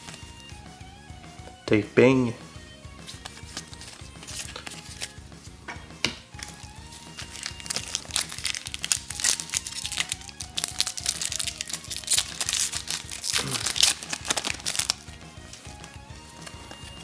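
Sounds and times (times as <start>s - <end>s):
foil wrapper crinkling: 3.1s - 5.2s, 6.4s - 15.1s.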